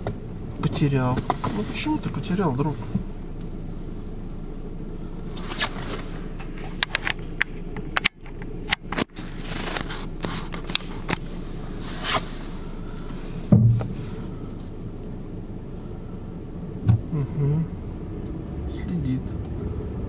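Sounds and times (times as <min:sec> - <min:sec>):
car rumble from inside cabin: 0:00.0 - 0:20.0
sharp clicks and rustles: 0:05.3 - 0:11.4
short low thud: 0:13.5 - 0:14.0, 0:16.8 - 0:17.1.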